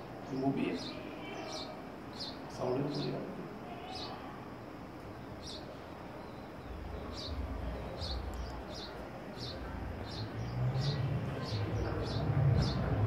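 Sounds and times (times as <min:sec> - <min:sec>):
sparrow chirping: 0:00.2 - 0:04.2, 0:05.0 - 0:13.0
low rumble: 0:06.6 - 0:13.0.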